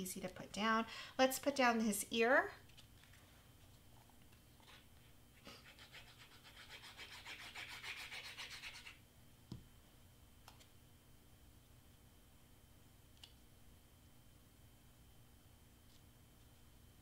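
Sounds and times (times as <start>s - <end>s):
rubbing strokes on cardstock: 5.4s - 9.0s.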